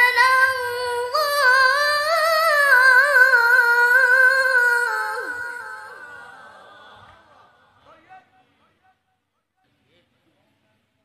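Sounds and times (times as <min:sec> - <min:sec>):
woman reciting melodically: 0:00.0 - 0:06.9.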